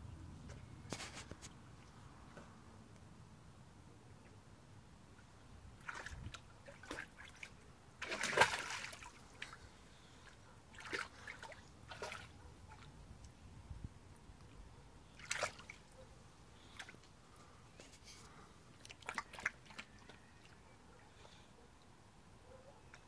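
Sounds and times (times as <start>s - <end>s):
dog splashing water: 8.0s - 9.5s, 15.2s - 15.8s, 18.8s - 20.1s.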